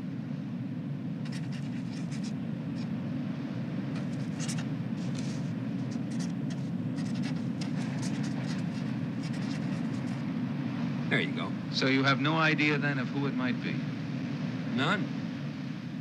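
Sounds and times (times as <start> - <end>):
steady low rumble: 0.0 - 16.0
pen scratching on paper: 1.3 - 2.9, 4.0 - 10.2.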